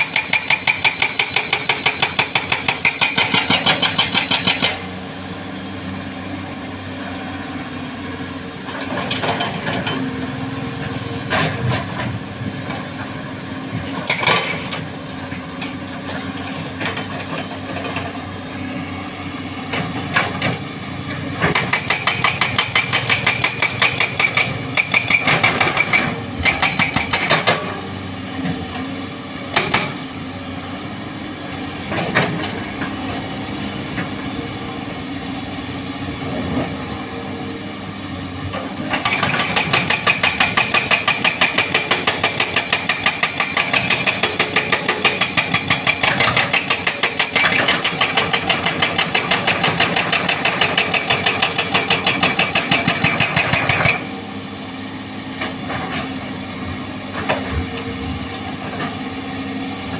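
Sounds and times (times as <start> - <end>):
hydraulic breaker hammering rock: 0.0 - 4.9, 21.4 - 27.8, 29.5 - 30.0, 38.9 - 54.1.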